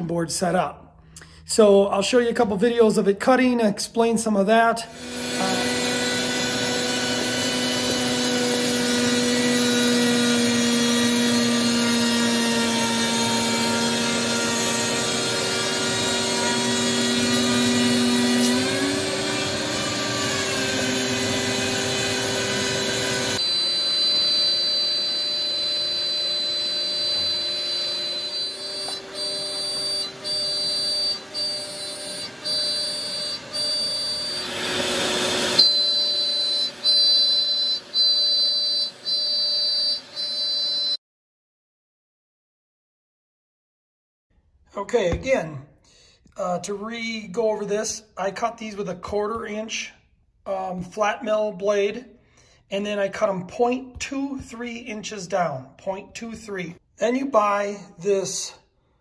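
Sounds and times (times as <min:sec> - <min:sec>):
shop vacuum running: 0:04.8 - 0:41.0
router bit cutting noise: 0:04.9 - 0:41.0
router spindle whine: 0:04.9 - 0:41.0.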